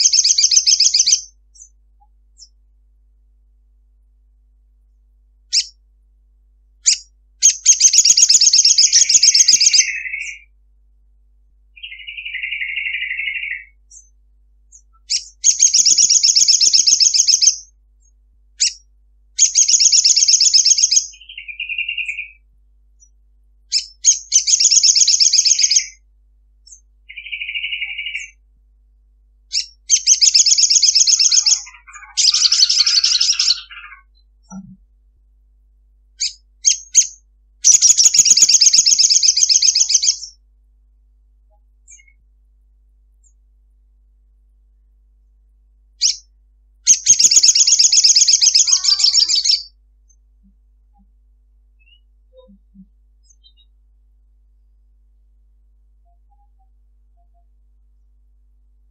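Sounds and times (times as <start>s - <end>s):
bird chattering trills: 0.0s - 1.7s, 5.5s - 5.8s, 6.8s - 10.5s, 15.0s - 17.7s, 19.4s - 22.4s, 23.7s - 26.0s, 26.7s - 28.4s, 29.5s - 34.8s, 36.2s - 40.4s, 46.9s - 49.7s.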